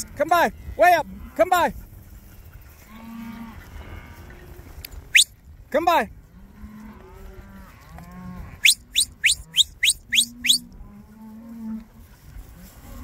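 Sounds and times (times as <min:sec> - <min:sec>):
sharp rising whistles: 0:05.1 - 0:05.3, 0:08.6 - 0:10.7
cattle mooing: 0:06.5 - 0:11.9.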